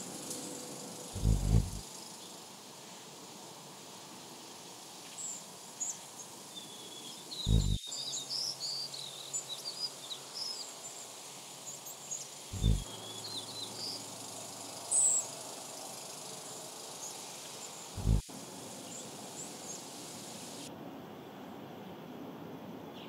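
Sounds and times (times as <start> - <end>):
faint outdoor hiss: 0.0 - 23.0
songbirds chirping: 0.8 - 2.4, 4.4 - 20.7
low thumps: 1.2 - 1.8, 7.5 - 7.8, 12.6 - 12.8, 18.0 - 18.2.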